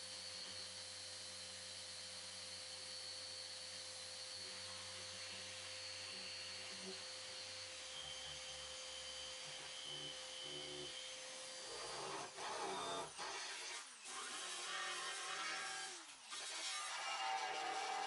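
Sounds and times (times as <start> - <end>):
orbital sander on metal: 4.6 - 16.0.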